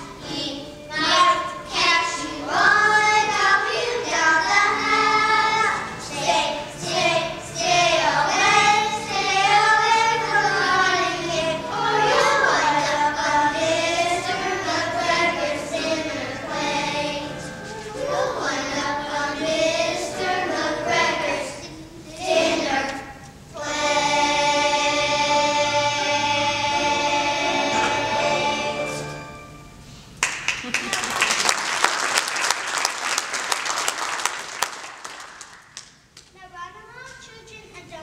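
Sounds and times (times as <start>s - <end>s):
children singing: 0.0s - 29.2s.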